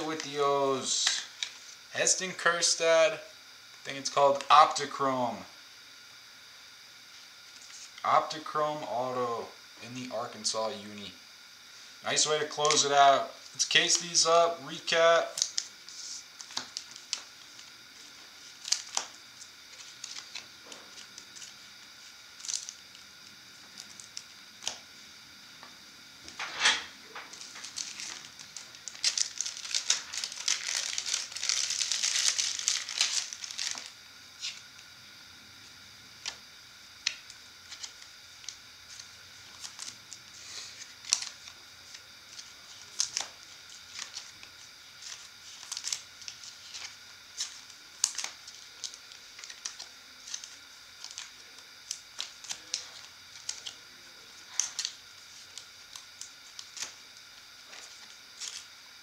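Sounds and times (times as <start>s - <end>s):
plastic crinkling: 15.3s - 24.8s, 27.1s - 34.7s, 37.0s - 58.7s.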